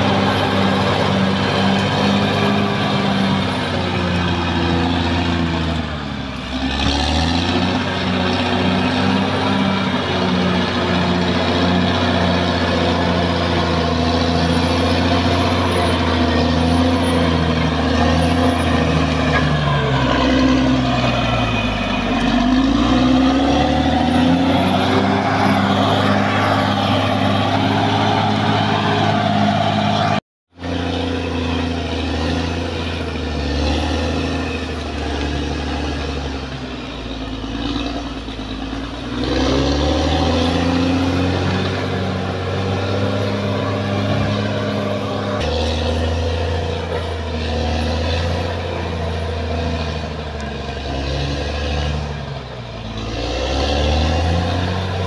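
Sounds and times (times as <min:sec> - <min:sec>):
bulldozer diesel engine revving: 0:00.0 - 0:55.0.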